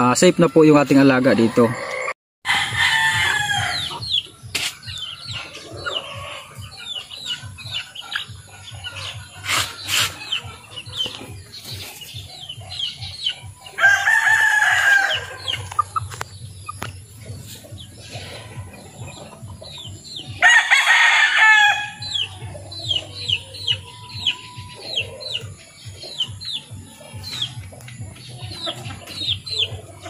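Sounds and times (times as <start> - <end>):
chickens clucking: 0.0 - 2.2, 2.9 - 30.0
rooster crowing: 1.5 - 3.8, 13.8 - 15.4, 20.4 - 22.0.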